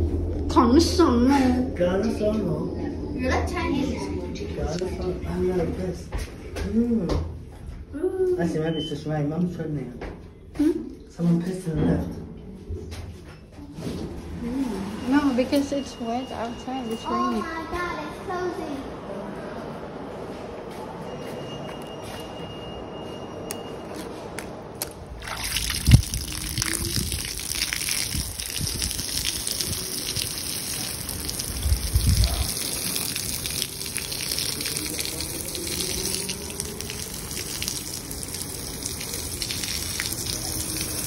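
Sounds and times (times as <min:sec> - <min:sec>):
low muffled rumble: 0:00.0 - 0:05.8
water rushing and splashing: 0:25.1 - 0:41.0.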